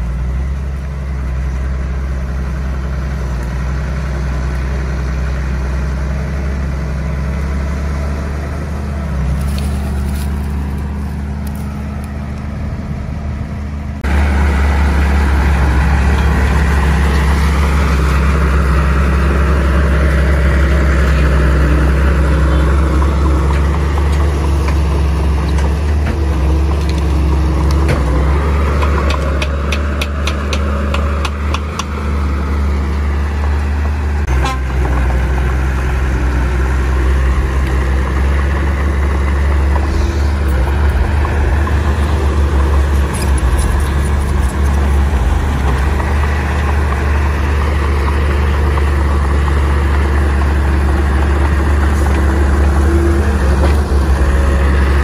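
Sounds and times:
heavy diesel engines running: 0.0 - 55.0.

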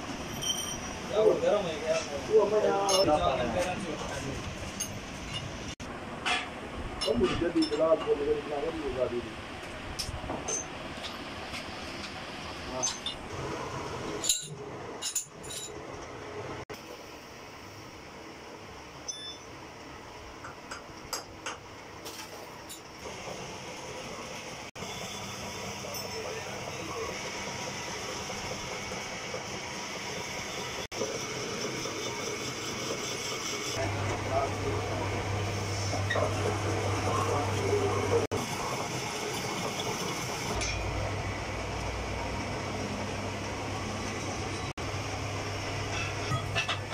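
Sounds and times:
metal lathe running: 24.8 - 46.9
machine hum: 26.8 - 46.9.

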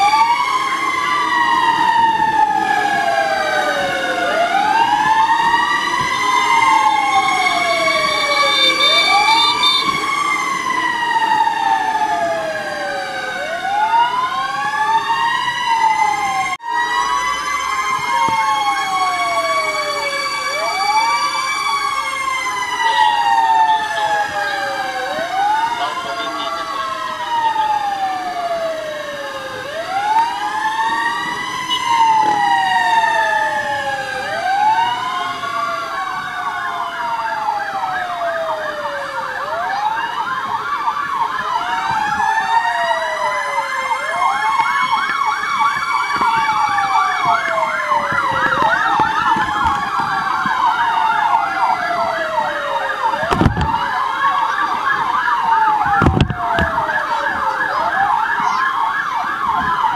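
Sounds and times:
siren wailing: 0.0 - 59.9
siren yelping warble: 0.0 - 59.9.

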